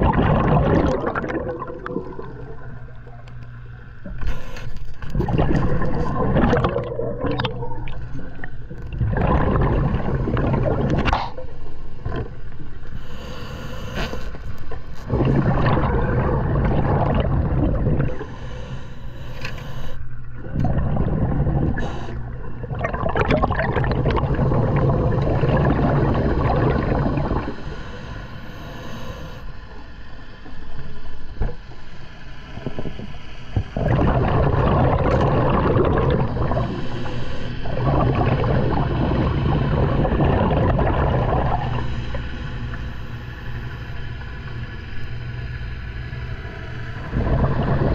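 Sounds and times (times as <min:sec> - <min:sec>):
exhaled bubbles underwater: 0:00.0 - 0:29.5, 0:32.5 - 0:44.7, 0:46.8 - 0:47.9
diver breathing through regulator: 0:12.9 - 0:15.2, 0:18.0 - 0:20.0, 0:21.6 - 0:22.4, 0:27.2 - 0:29.6.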